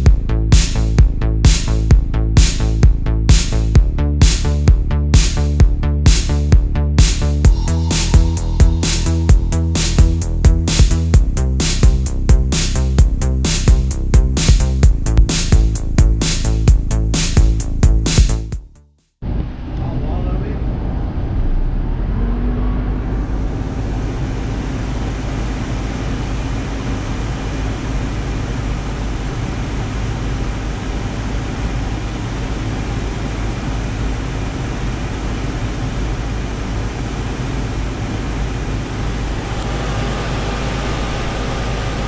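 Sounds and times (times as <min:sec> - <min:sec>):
engine and road noise: 0:19.3 - 0:29.7.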